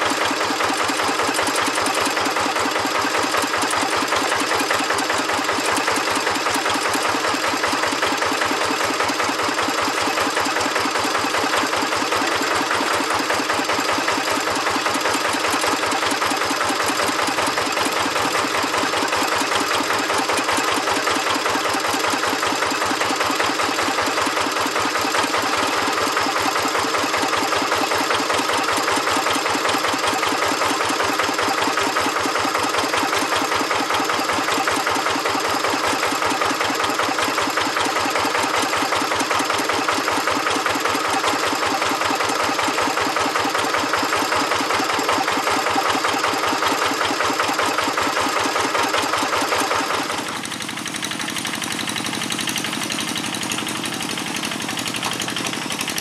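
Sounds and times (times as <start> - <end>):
diesel engine idling: 49.6 - 56.0.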